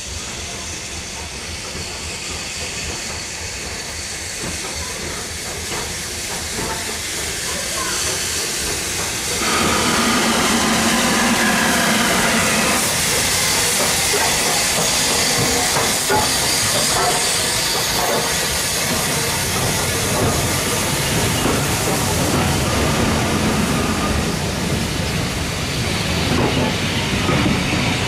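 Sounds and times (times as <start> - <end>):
steam locomotive hissing steam: 0.0 - 28.0
train wheel clicks: 2.6 - 22.6.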